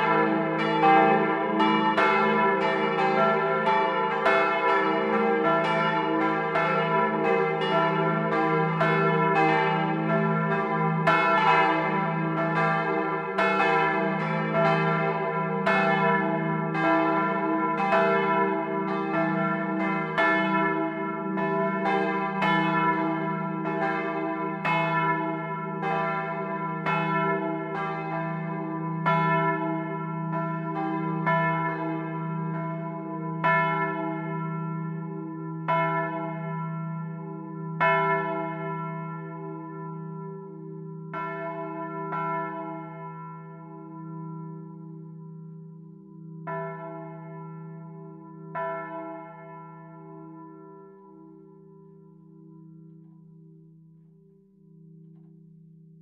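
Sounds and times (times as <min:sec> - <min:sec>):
church bells ringing: 0:00.0 - 0:55.4.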